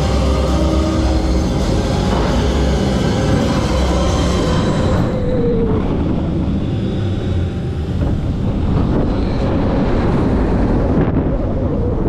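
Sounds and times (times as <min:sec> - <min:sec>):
roller coaster rumbling on track: 0:00.0 - 0:12.0
wind rushing over microphone: 0:02.1 - 0:12.0.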